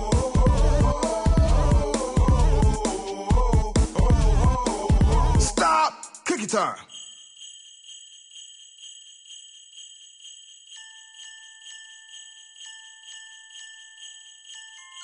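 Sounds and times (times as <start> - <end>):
jingle bells shaken: 0.0 - 15.0
ringing bell tones: 6.9 - 15.0.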